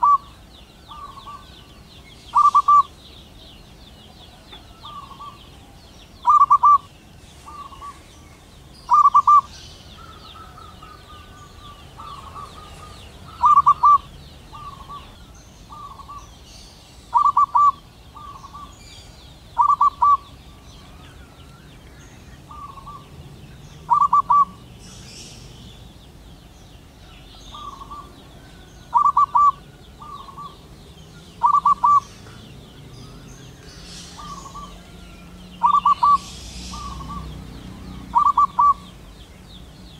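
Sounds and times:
dove cooing: 0.0s - 1.7s, 2.3s - 3.4s, 4.0s - 8.2s, 8.9s - 16.3s, 17.1s - 18.8s, 19.5s - 21.2s, 22.4s - 23.2s, 23.8s - 25.4s, 27.5s - 33.2s, 33.8s - 35.0s, 35.6s - 39.0s.

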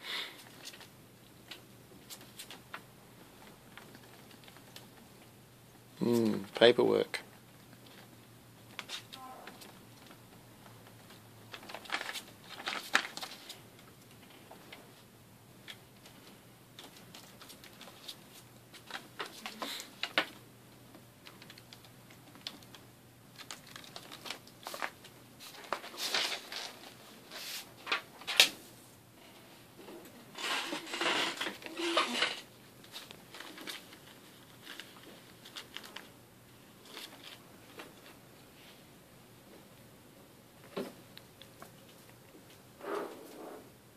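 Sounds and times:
paper rustling and crinkling: 10.8s - 14.2s, 15.7s - 20.4s, 21.2s - 28.5s, 30.4s - 36.2s, 36.8s - 38.2s.

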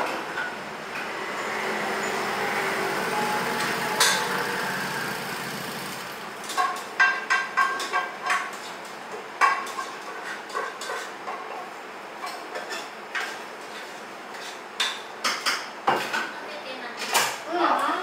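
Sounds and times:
scooter engine running: 1.0s - 6.5s
dishes clinking: 3.3s - 4.6s.

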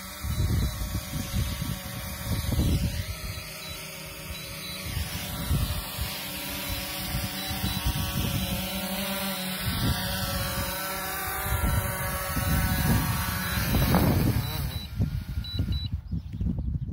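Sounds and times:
drone propellers whining: 0.0s - 16.1s
wind buffeting microphone: 0.0s - 16.9s.

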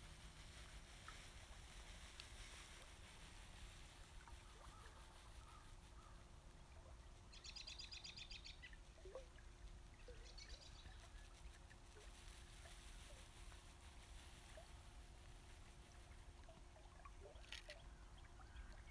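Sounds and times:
low rumble of outdoor air: 0.0s - 18.9s
faint bird chirps: 4.2s - 11.6s.

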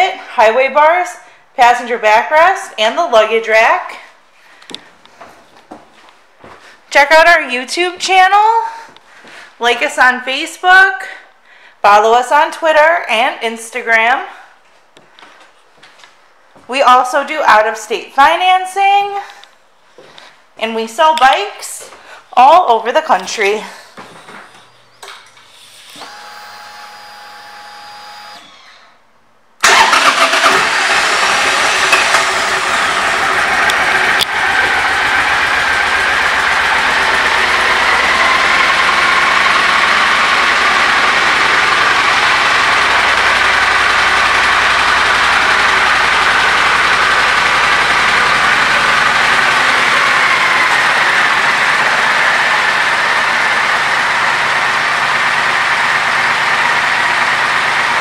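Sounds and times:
motorcycle engine idling: 32.0s - 58.0s.

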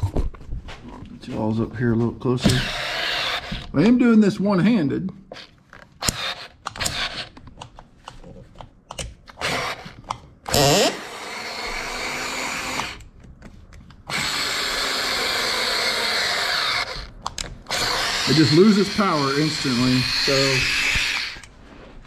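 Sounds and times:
electric screwdriver motor running: 2.5s - 3.7s, 6.0s - 7.3s, 9.4s - 13.0s, 14.1s - 21.5s
tool clicks: 5.4s - 10.8s, 16.8s - 19.0s.

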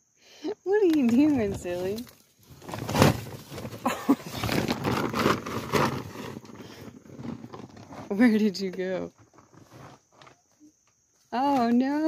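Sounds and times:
sharp crackles: 1.0s - 8.2s
plastic tarp rustling: 1.4s - 10.4s.

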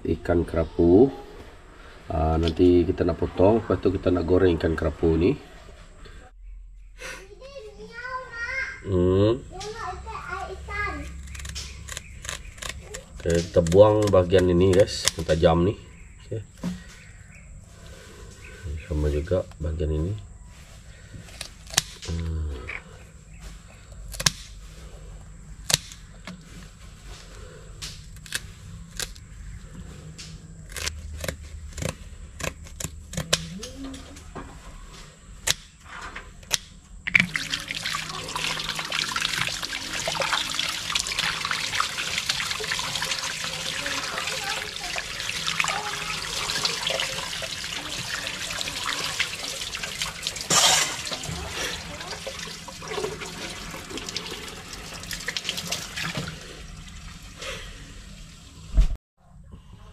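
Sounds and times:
scissors snipping: 11.1s - 14.2s, 30.6s - 33.8s
tap water running over fish: 37.1s - 57.0s.

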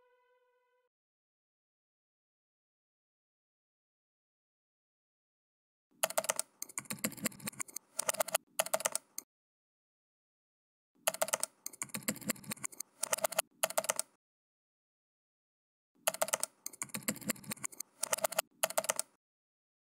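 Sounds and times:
keyboard typing clicks: 6.0s - 9.2s, 11.0s - 14.2s, 16.0s - 19.2s.

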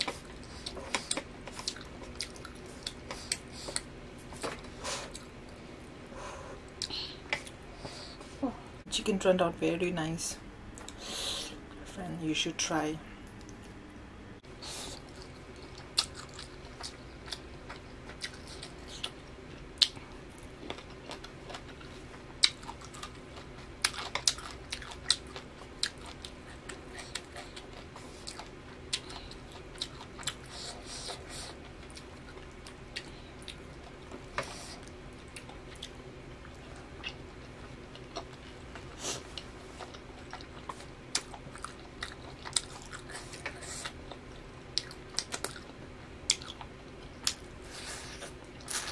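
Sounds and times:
chewing and mouth smacks: 0.0s - 5.6s, 15.0s - 47.5s.

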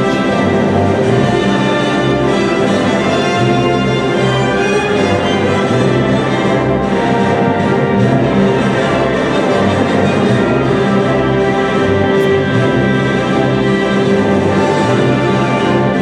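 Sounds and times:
orchestral music: 0.0s - 16.0s.

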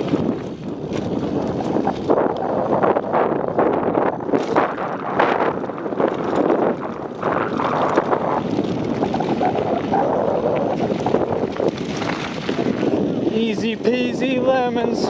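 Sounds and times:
tyres crunching on gravel: 0.0s - 2.8s, 3.7s - 15.0s
bike clattering over bumps: 0.0s - 15.0s
wind buffeting microphone: 0.0s - 15.0s.

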